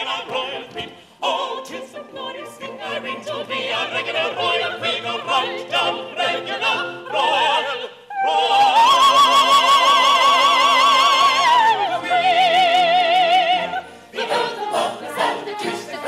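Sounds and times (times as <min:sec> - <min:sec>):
operatic voices singing: 0:00.0 - 0:16.0
orchestra playing dance music: 0:11.7 - 0:16.0.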